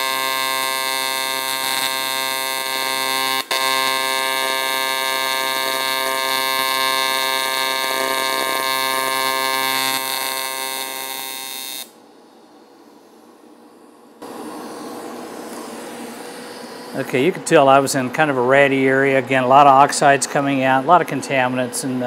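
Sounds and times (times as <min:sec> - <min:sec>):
welding arc buzzing: 0:00.0 - 0:17.4.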